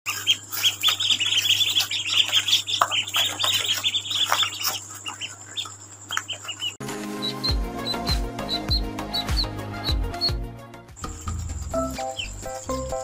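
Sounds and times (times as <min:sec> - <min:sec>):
ducklings peeping: 0:00.1 - 0:10.4, 0:11.0 - 0:13.0.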